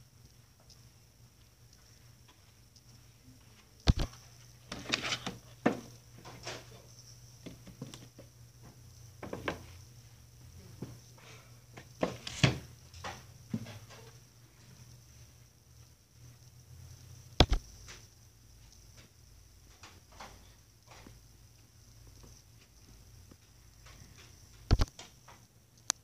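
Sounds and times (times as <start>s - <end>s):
steady low hum: 0.0s - 26.0s
books knocking on wooden shelf: 9.2s - 9.7s.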